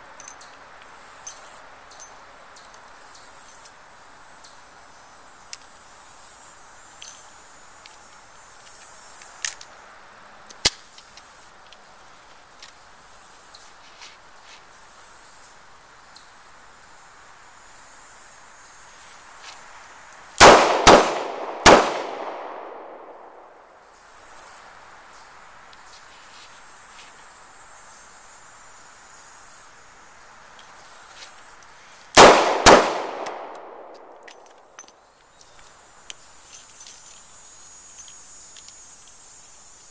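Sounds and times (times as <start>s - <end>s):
revolver gunshots with echo: 20.4s - 23.5s, 32.2s - 34.2s.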